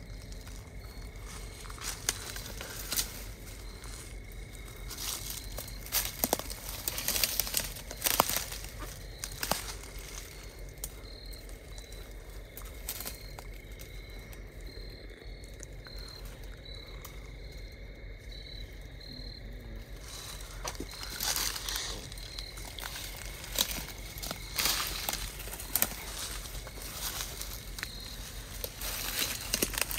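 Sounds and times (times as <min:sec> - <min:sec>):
brush rustling: 0:00.0 - 0:14.0, 0:19.8 - 0:29.9
footsteps crunching dry leaves: 0:00.1 - 0:11.8, 0:20.0 - 0:29.9.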